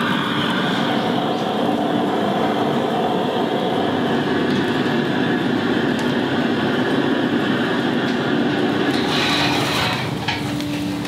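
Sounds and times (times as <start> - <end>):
stew boiling hard: 0.0 - 11.0
fire crackling and popping: 3.7 - 11.0.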